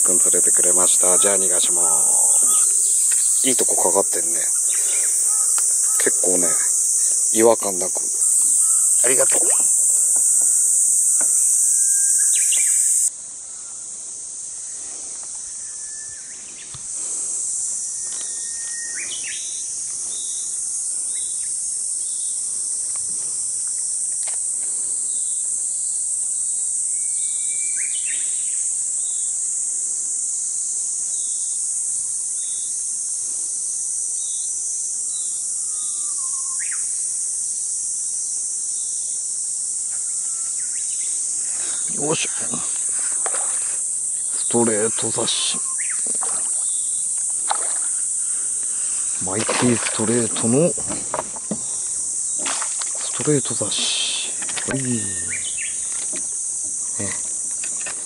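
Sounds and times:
bird chirping: 0.0 - 13.1, 45.3 - 47.0, 54.8 - 56.0
insects buzzing: 0.0 - 58.0.

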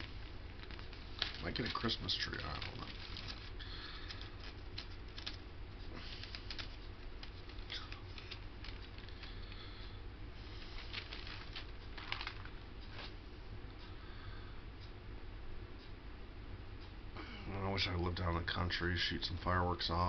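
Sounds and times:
objects rustling and clicking: 0.0 - 9.6, 10.4 - 13.2
steady low hum: 0.0 - 20.0.

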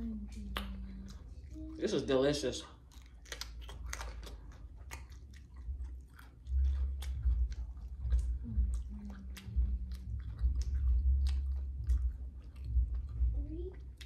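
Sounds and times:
person chewing pizza: 0.0 - 14.0
low rumble: 3.4 - 14.0.

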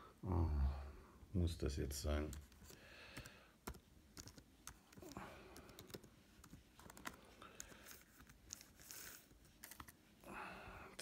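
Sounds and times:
computer keyboard key clicks: 3.2 - 7.2.

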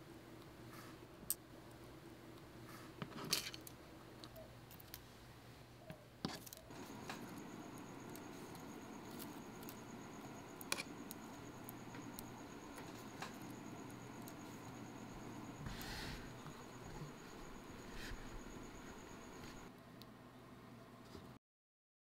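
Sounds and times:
faint hum: 0.0 - 21.4.

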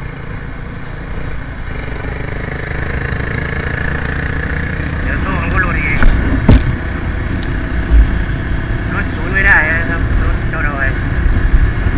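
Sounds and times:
small motorcycle engine running: 0.0 - 5.8
road and wind noise: 0.0 - 11.9.

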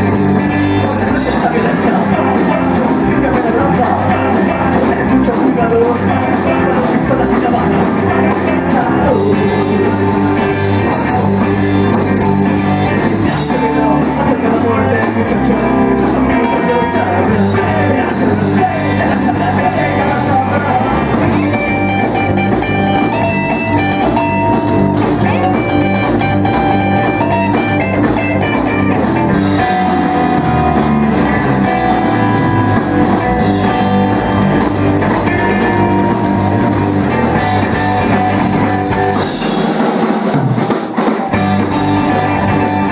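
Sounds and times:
melodic guitar line: 0.0 - 42.9
rock band playing live: 0.0 - 42.9.

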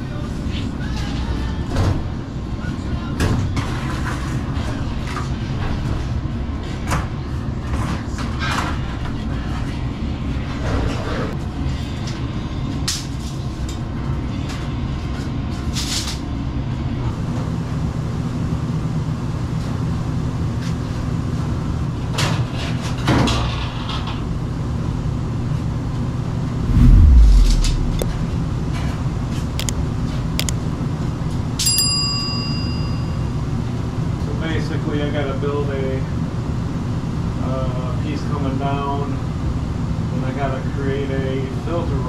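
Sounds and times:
steady low hum: 26.6 - 29.8
heavy thud: 26.7 - 28.4.

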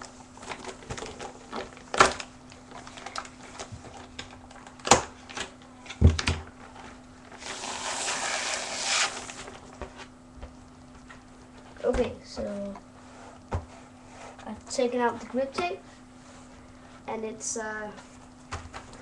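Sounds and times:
faint steady hum: 0.0 - 19.0
plastic packaging crinkling: 0.3 - 4.9
rustling hiss of sheet in sleeve: 7.4 - 9.4.

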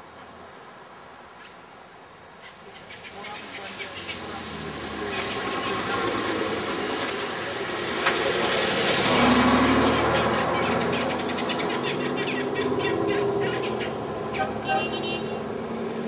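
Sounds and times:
vehicle passing: 3.3 - 16.0.

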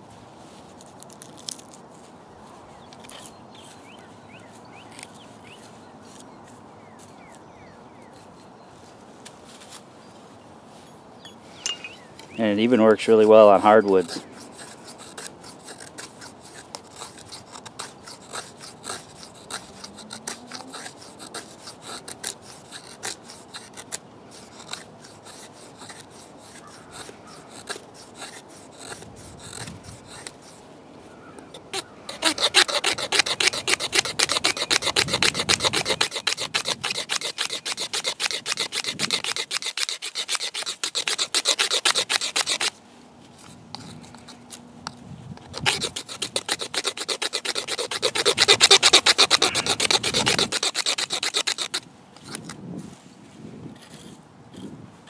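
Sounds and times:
knife scraping wooden stick: 11.6 - 30.7, 31.5 - 42.8, 43.4 - 52.6, 53.8 - 54.8.

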